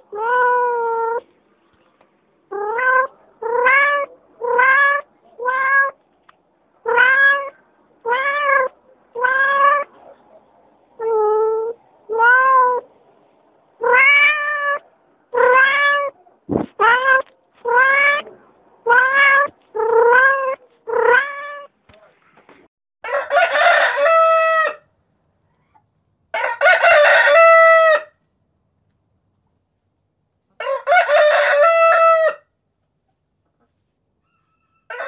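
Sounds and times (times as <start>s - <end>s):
cat meowing: 0.0s - 1.2s, 2.5s - 6.0s, 6.8s - 10.0s, 11.0s - 12.9s, 13.8s - 21.8s
rooster crowing: 23.0s - 24.9s, 26.3s - 28.2s, 30.6s - 32.5s, 34.2s - 35.0s.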